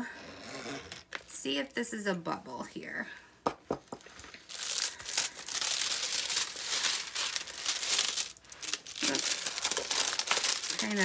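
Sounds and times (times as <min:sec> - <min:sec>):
plastic film crinkling: 0:04.0 - 0:11.0.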